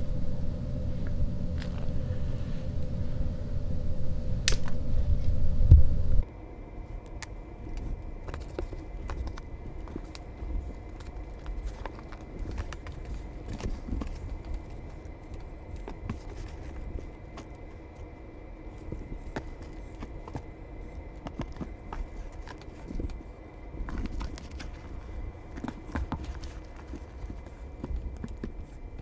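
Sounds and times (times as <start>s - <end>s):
faint steady high tone: 0.0s - 8.0s
low rumble: 0.0s - 29.0s.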